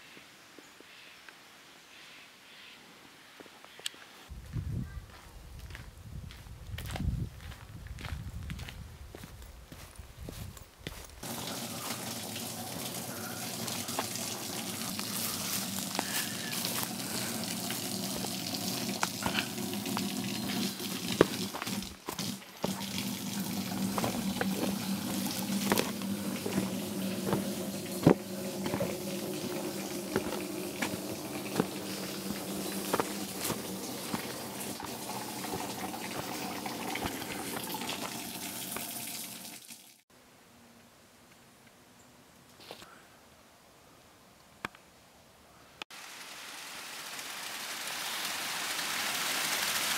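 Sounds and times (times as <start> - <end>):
footsteps on wooden planks: 5.1 - 11.2, 19.0 - 38.2
stream water rushing: 11.2 - 39.8.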